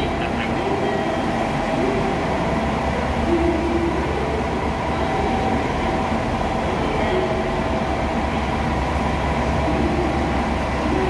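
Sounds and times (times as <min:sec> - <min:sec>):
diesel railcar rumbling: 0:00.0 - 0:11.0.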